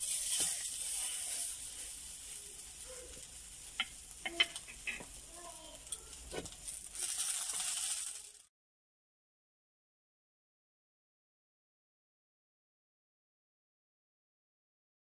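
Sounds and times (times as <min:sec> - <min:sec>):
bread sizzling in hot oil: 0:00.0 - 0:08.5.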